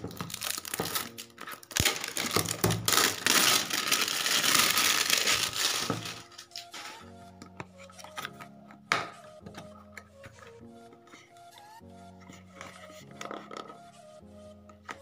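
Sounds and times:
cardboard box crinkling: 0.0 - 7.0
packaging rustling and scraping: 0.0 - 8.4, 12.1 - 14.0
soft background music: 0.0 - 15.0.

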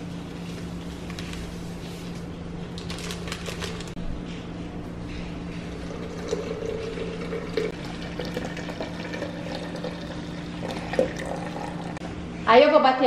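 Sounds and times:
water pouring into a blender jar: 5.9 - 12.0.

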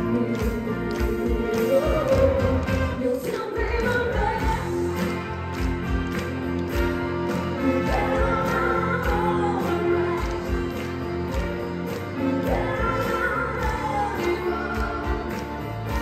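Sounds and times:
group of voices singing: 7.6 - 10.9, 12.2 - 16.0.

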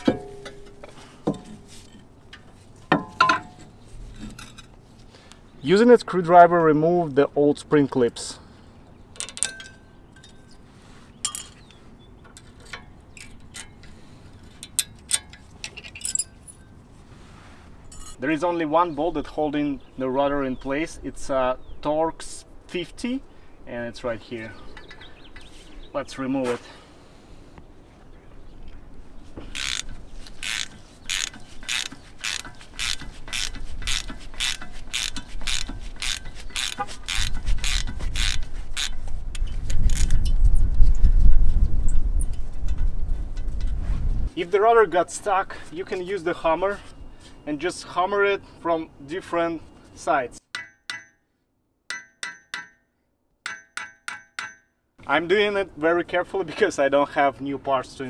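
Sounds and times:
metal clips clicking and clinking: 9.2 - 10.5, 14.6 - 16.6
socket ratchet clicking: 29.5 - 40.3.

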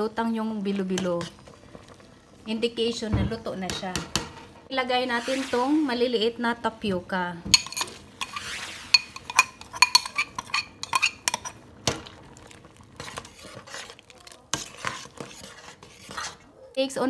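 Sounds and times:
metal spoon clinking on bowl: 7.6 - 11.6.

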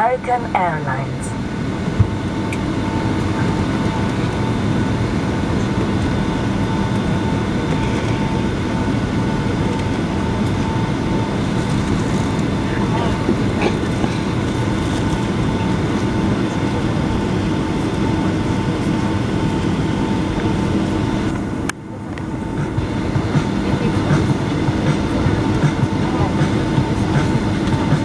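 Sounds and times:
jet engines idling: 0.0 - 28.0
wheels rolling on taxiway: 1.8 - 23.8.

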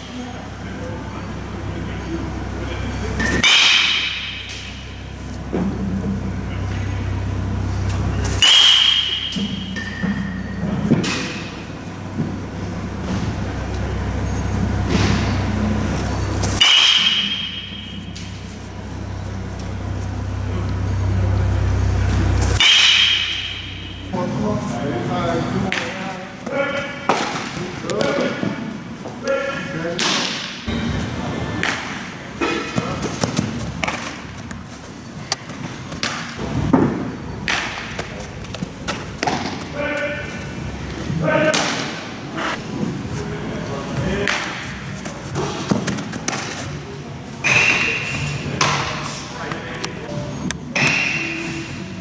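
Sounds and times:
baseballs thudding with hall echo: 0.0 - 51.8
bat cracking a ball: 16.6 - 18.3, 36.0 - 38.1.

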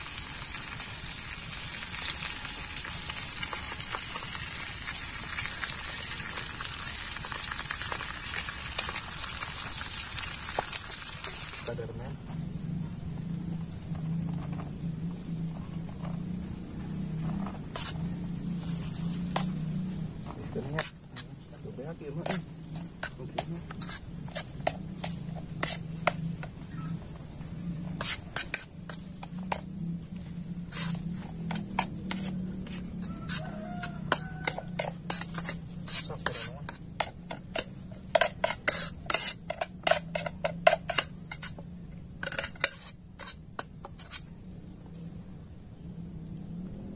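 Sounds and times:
high insect drone: 0.0 - 46.9
metal spoon scraping metal pot: 22.2 - 26.2, 28.0 - 29.6, 30.7 - 41.6, 42.2 - 44.2.

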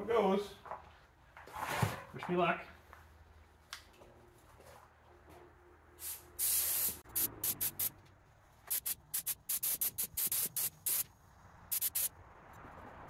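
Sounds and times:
paint spray gun hissing: 6.0 - 7.9, 8.7 - 11.1, 11.7 - 12.1.

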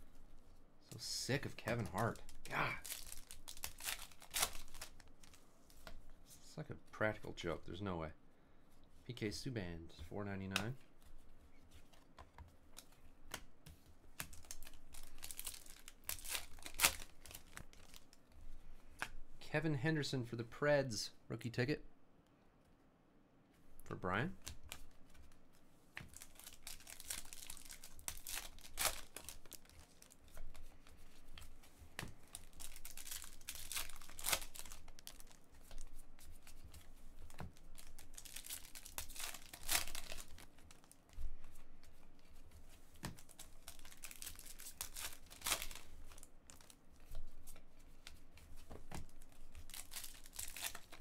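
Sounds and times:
plastic wrappers crinkling: 1.0 - 5.4, 14.2 - 18.2, 26.1 - 51.0
card pack tearing open: 1.7 - 5.0, 14.3 - 18.0, 26.2 - 30.4, 32.3 - 35.4, 37.8 - 40.4, 43.2 - 46.7, 49.6 - 51.0.

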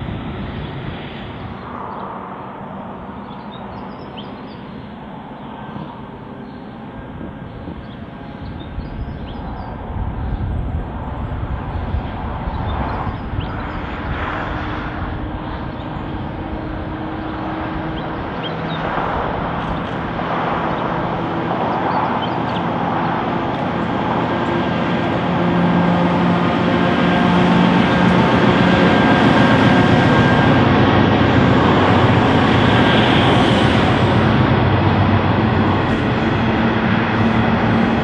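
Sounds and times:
wagons rumbling on rails: 0.0 - 38.0
locomotive engines running: 15.0 - 38.0.

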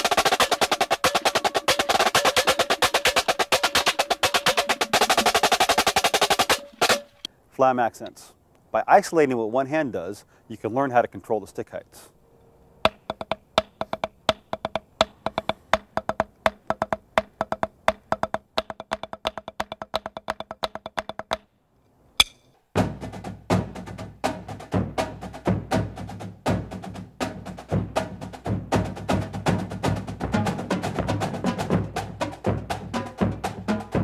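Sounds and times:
marching drum line playing: 0.0 - 7.2, 22.8 - 34.0
drumsticks tapping practice pad: 0.0 - 7.3, 12.8 - 21.5, 22.2 - 22.6.

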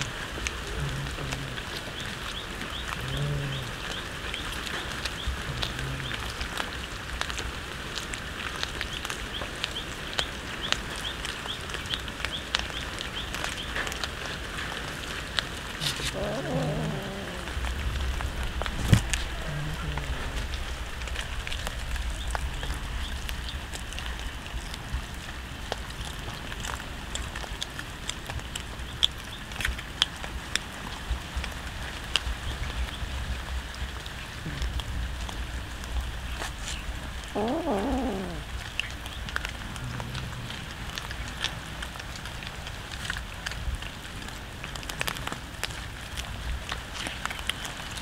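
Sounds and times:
cats chewing and crunching fish: 0.0 - 48.0
cat meowing: 15.8 - 17.6, 37.4 - 38.5.

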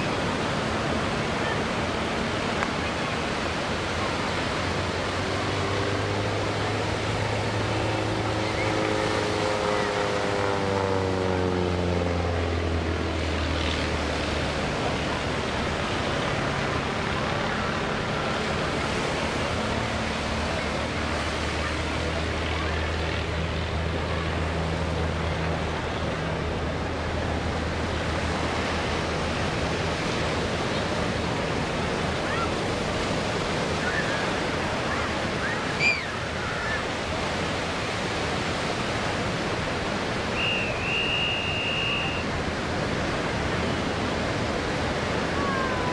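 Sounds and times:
distant airplane engine droning: 0.0 - 45.9
steady rushing noise: 0.0 - 45.9.

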